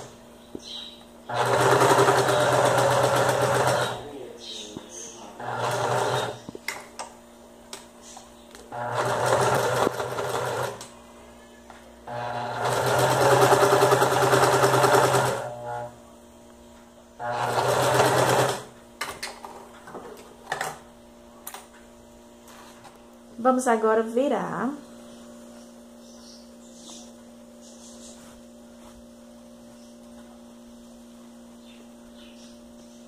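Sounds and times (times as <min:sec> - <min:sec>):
sewing machine stitching: 0:01.3 - 0:04.1, 0:05.4 - 0:06.4, 0:08.7 - 0:10.9, 0:12.1 - 0:15.9, 0:17.2 - 0:18.7.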